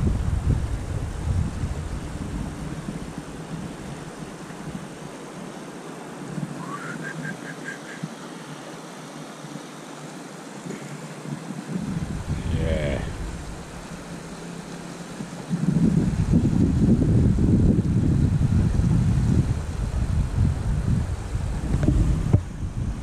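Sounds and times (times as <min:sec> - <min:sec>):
wind rumble: 0:00.0 - 0:08.2, 0:11.3 - 0:23.0
steady outdoor hiss: 0:00.0 - 0:23.0
high bird call: 0:06.6 - 0:08.1.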